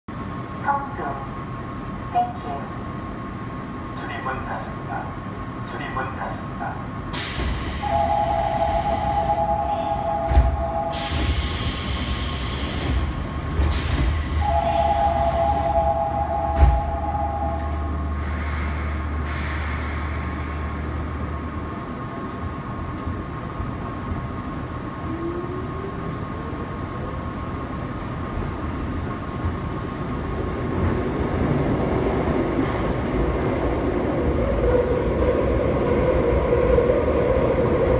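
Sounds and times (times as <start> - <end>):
train running noise: 0.1 - 37.9
air hissing: 7.2 - 9.6, 10.9 - 15.7
train doors thudding shut: 9.6 - 14.8, 16.2 - 17.9.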